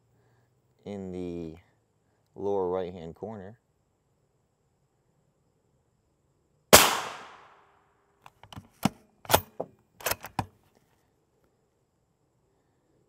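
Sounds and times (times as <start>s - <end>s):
rifle shot with ringing tail: 6.7s - 7.6s
rifle bolt metallic clacks: 8.3s - 10.5s.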